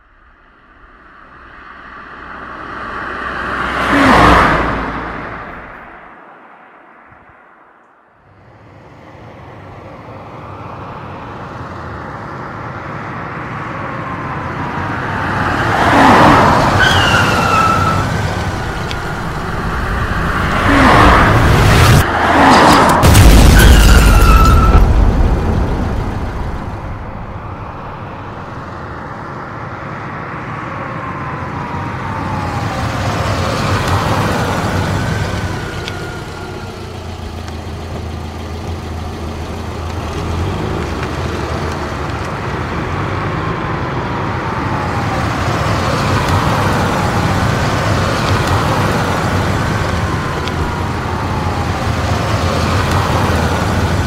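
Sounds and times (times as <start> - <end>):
cars driving past: 0.4 - 54.0
loud boom: 18.5 - 28.4.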